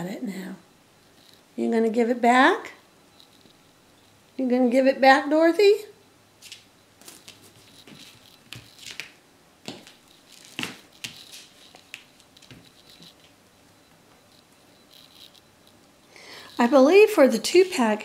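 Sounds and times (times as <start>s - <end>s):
kittens scratching on wooden floor: 6.4s - 16.8s.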